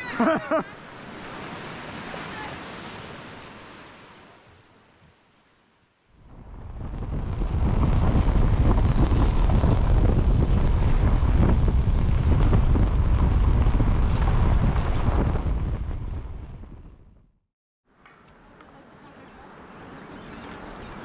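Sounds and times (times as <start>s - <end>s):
wind buffeting microphone: 6.2s - 17.2s.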